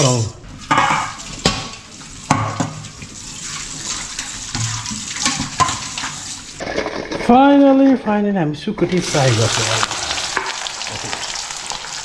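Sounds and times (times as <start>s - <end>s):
tap water running into sink: 0.0s - 6.5s
metal dishes knocking: 0.7s - 1.7s, 2.3s - 2.8s.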